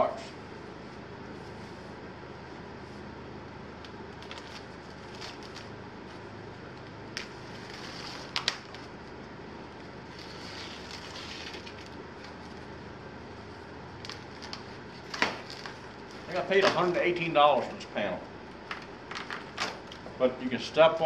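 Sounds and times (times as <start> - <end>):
steady hum: 0.0 - 21.0
cardboard scraping and rustling: 10.1 - 11.9.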